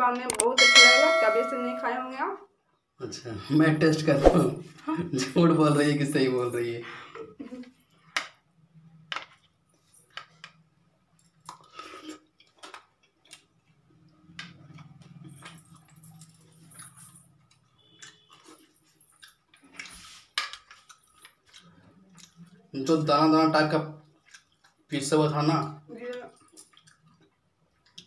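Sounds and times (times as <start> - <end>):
chewing: 11.2 - 22.7, 24.0 - 24.9, 26.0 - 28.0.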